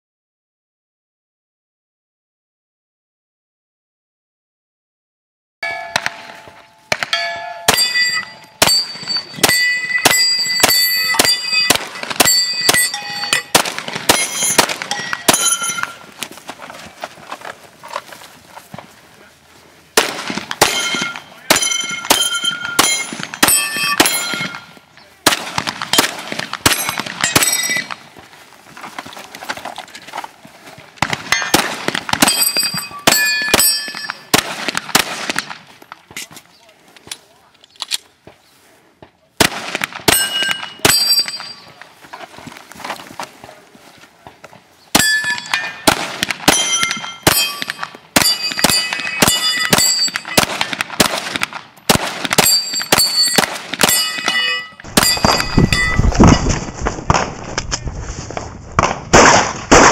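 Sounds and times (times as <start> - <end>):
steel targets ringing: 5.6 - 16.1, 20.6 - 24.8, 26.0 - 28.1, 31.3 - 34.3, 40.1 - 41.8, 45.0 - 50.8, 52.4 - 56.4
pistol shots: 6.0 - 16.0, 20.0 - 28.0, 31.0 - 35.6, 39.4 - 41.6, 44.9 - 55.9, 58.8 - 59.9.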